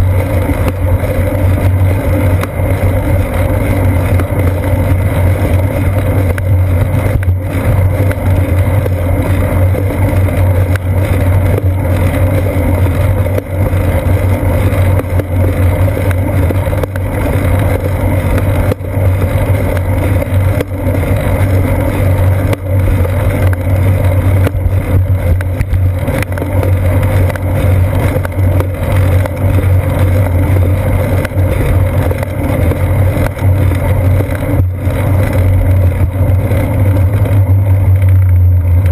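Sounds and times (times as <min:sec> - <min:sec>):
low rumble of wind and road: 0:00.0 - 0:38.9.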